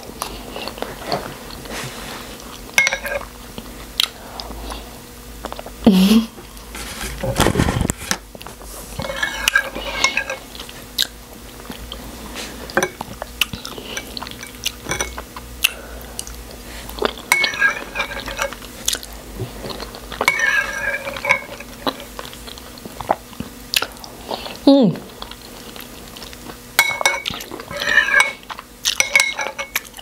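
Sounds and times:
chewing and wet mouth sounds: 0.1s - 5.8s, 8.4s - 30.0s
metal spoon scraping bowl: 9.0s - 10.6s, 17.3s - 18.6s, 20.2s - 22.3s, 26.8s - 30.0s.

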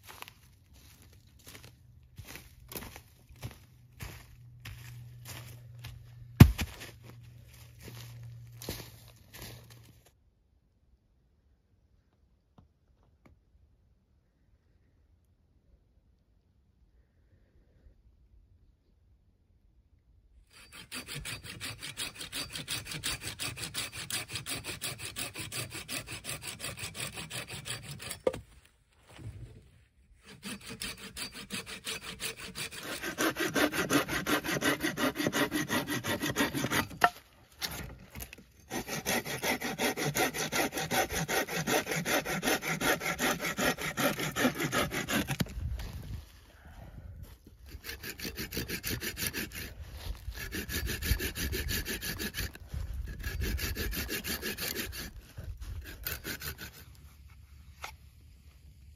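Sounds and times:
saw cutting dry wood: 20.5s - 28.5s, 30.1s - 45.8s, 47.6s - 57.2s.

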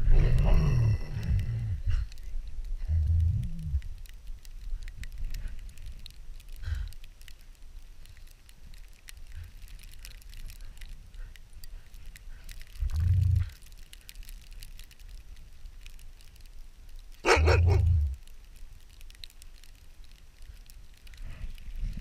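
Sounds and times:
dog growling: 17.2s - 18.2s
dog grunt: 17.2s - 18.2s.

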